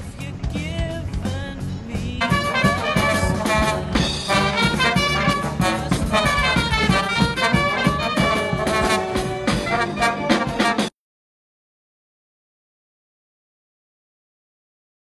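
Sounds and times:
snare and bass drums: 0.0 - 10.9
brass band playing: 2.2 - 11.0.

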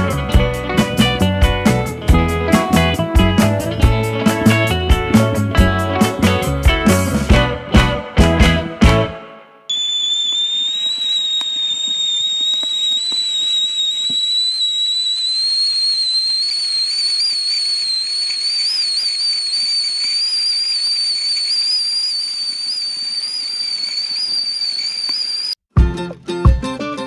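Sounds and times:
kettle whistling: 9.7 - 25.6
wood fire crackling: 9.8 - 25.6.

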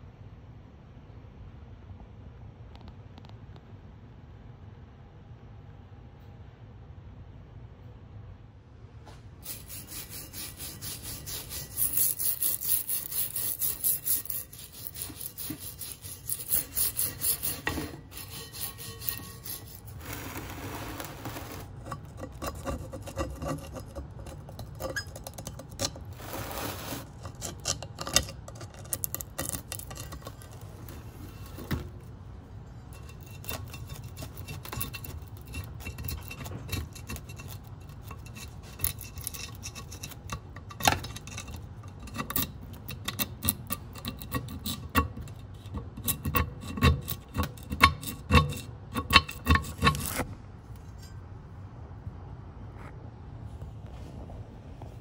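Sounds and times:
metal blade scraping rust: 9.4 - 31.8, 32.8 - 51.2.

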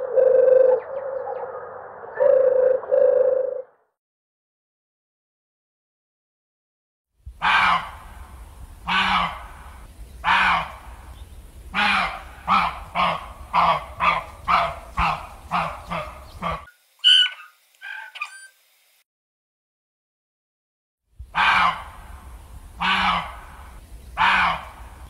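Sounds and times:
loud animal calls: 8.8 - 10.8, 11.7 - 18.5, 22.8 - 24.9
short higher animal calls: 17.0 - 18.6.

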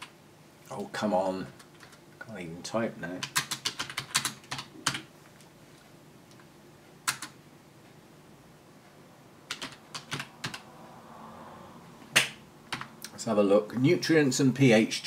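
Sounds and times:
computer keyboard typing: 1.6 - 2.0, 3.2 - 5.1, 7.0 - 7.4, 9.5 - 10.7, 12.7 - 12.9.

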